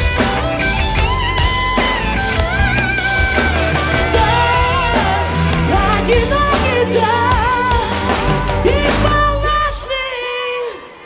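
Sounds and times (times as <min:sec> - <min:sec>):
low bass line: 0:00.0 - 0:09.6.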